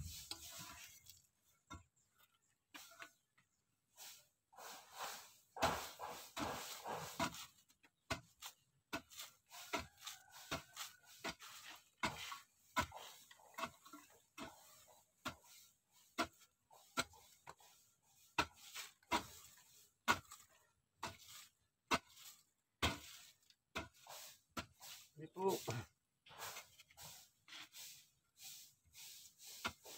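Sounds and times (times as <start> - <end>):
hoe chopping into dry soil: 5.6 - 17.6, 18.3 - 25.1.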